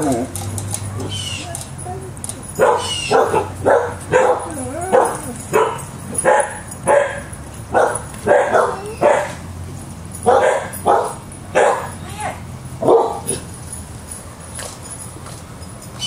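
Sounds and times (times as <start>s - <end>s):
dog barking: 2.6s - 9.4s, 10.2s - 12.0s, 12.8s - 13.4s.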